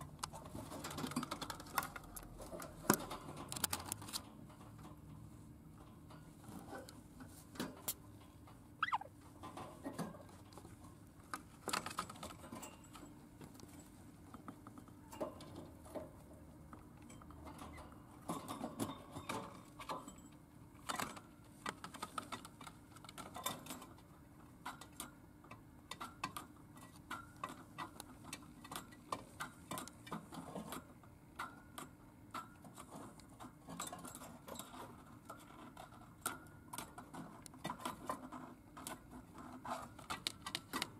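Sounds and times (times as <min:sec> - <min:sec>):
bird chirp: 0:08.8 - 0:09.1.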